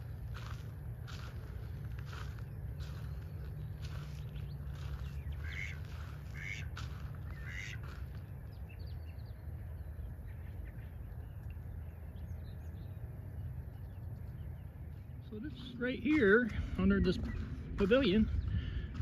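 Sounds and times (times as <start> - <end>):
steady low rumble: 0.0 - 19.0
ducks quacking: 3.8 - 8.2.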